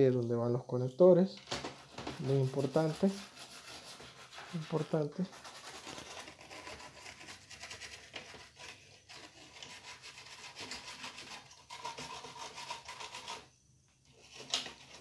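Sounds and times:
toothbrush scrubbing circuit board: 2.2s - 8.3s, 9.0s - 13.5s.

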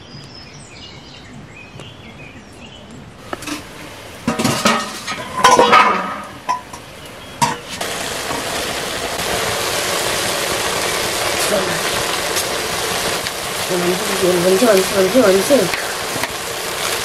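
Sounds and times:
greens sizzling in a wok: 3.3s - 17.0s
metal ladle scraping a pan: 3.4s - 6.8s.

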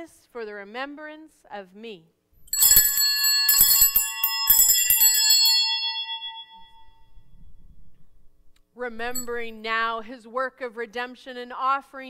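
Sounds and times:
altar bells ringing: 2.4s - 7.4s.

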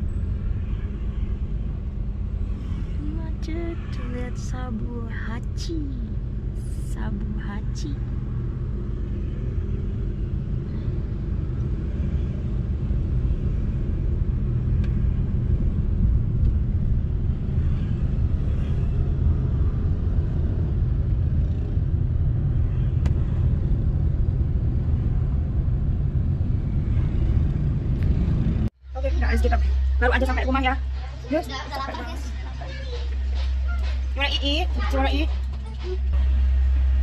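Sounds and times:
car cabin road and engine rumble: 27.4s - 37.0s.

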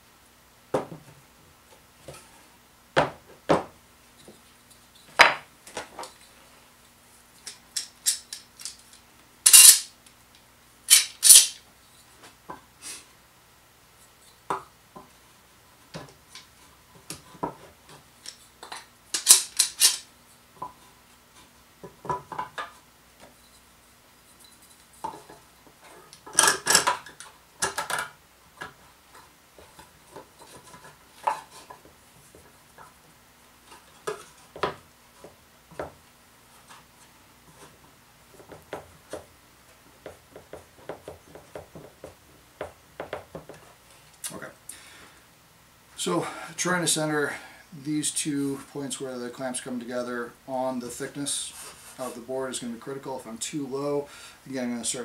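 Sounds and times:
metal bar clamps clattering: 19.2s - 20.1s.

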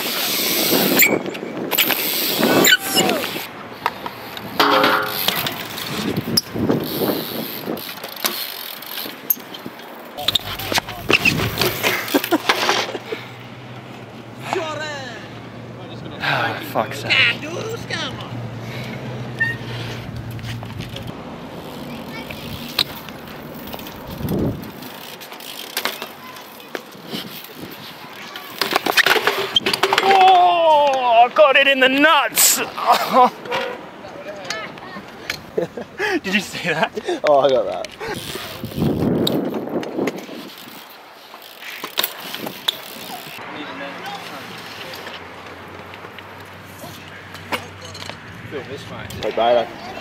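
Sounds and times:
bike tyres rolling on concrete: 0.0s - 14.8s, 15.4s - 50.0s
bike clicks and knocks: 3.8s - 6.5s, 7.3s - 13.1s, 19.4s - 31.0s, 37.5s - 43.4s, 44.0s - 49.3s
bike landing knocks: 4.6s - 5.7s, 10.2s - 13.0s.

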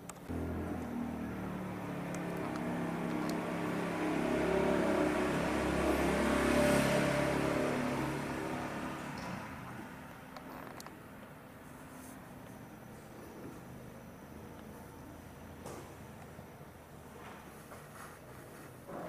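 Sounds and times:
passing vehicle engine drone: 0.3s - 10.3s.

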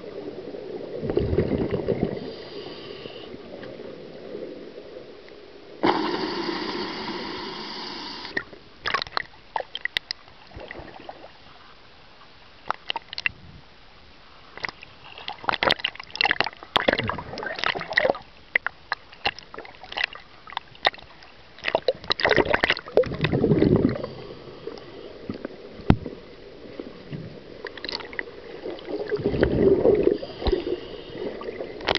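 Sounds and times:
scuba exhaust bubbles rushing: 0.8s - 2.6s, 22.1s - 26.3s, 28.0s - 31.9s
clicks and crackles: 8.3s - 10.7s, 12.6s - 13.4s, 14.6s - 23.8s.

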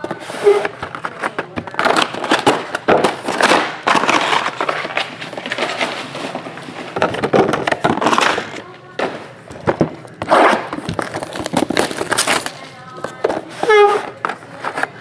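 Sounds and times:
cardboard boxes scraping on table: 0.0s - 8.6s, 10.2s - 14.9s
plastic shrink wrap crinkling: 0.0s - 15.0s.

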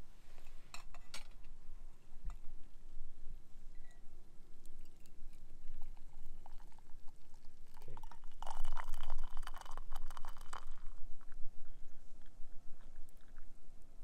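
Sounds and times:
coffee pouring into metal mug: 4.9s - 11.4s.

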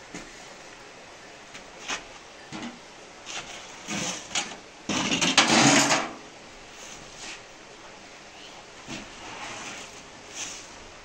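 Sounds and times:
plastic scoop scraping grain: 3.2s - 6.1s, 8.9s - 10.8s.

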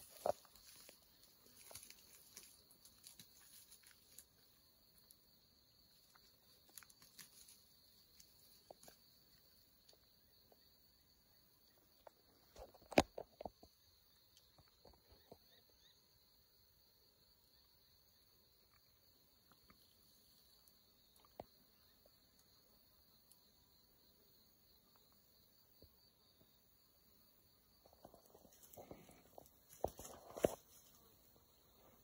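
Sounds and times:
footsteps in dry grass: 0.0s - 4.4s, 28.3s - 31.0s
insects chirring: 0.0s - 32.0s.

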